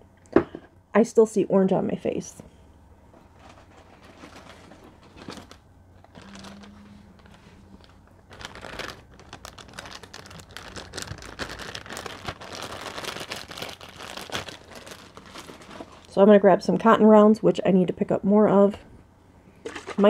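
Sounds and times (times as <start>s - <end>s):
plastic bag crinkling: 3.3s - 16.2s.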